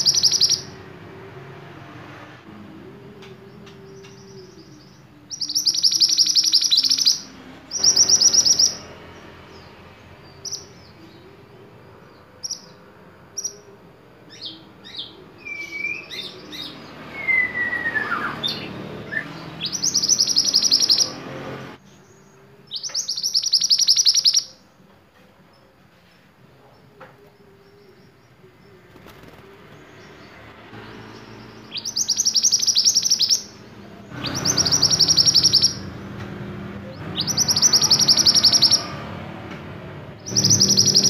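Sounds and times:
bird calling high repeated notes: 0.0s - 0.8s, 4.0s - 8.9s, 17.2s - 21.2s, 22.8s - 24.6s, 31.6s - 35.9s, 36.9s - 39.0s, 40.2s - 41.0s
bird chirps: 0.0s - 0.8s, 3.1s - 24.8s, 25.5s - 36.1s, 36.8s - 39.2s, 40.2s - 41.0s.

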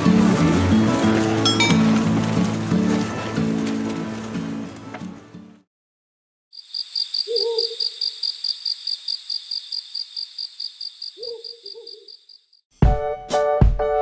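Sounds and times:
cricket chirping: 6.6s - 12.7s
low hoot: 7.3s - 7.8s, 11.2s - 12.1s.

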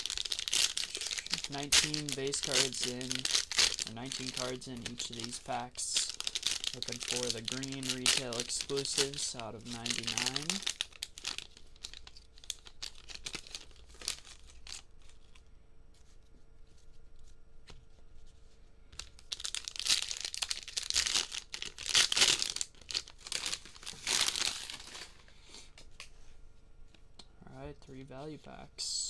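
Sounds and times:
plastic wrappers tearing and crinkling: 0.0s - 15.5s, 19.0s - 25.2s.

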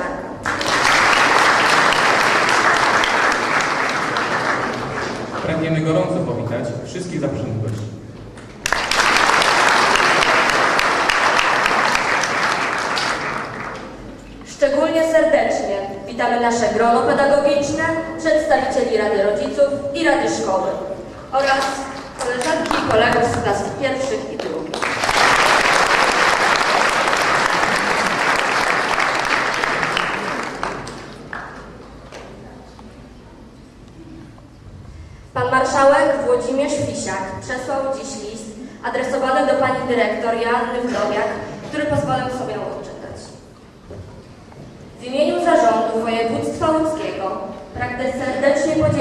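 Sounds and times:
large audience applauding: 0.4s - 5.5s, 8.6s - 14.1s, 24.4s - 32.1s.

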